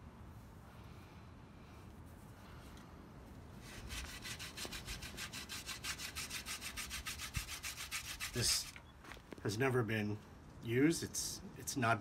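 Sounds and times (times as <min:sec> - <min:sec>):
hand drill grinding on wood: 0:03.9 - 0:08.8.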